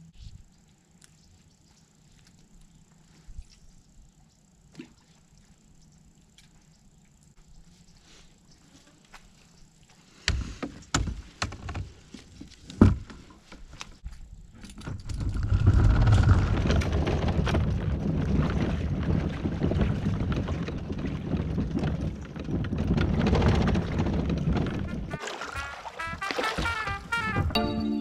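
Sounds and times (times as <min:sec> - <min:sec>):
plastic hull scraping down ramp: 0:15.0 - 0:25.2, 0:26.0 - 0:27.6.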